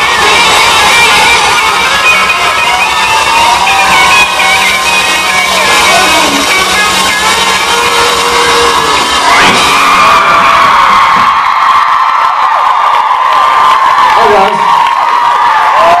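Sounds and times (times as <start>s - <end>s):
live band playing: 0.0s - 11.9s
crowd cheering and screaming: 0.0s - 16.0s
loud rising whoop: 0.1s - 7.1s, 7.7s - 16.0s.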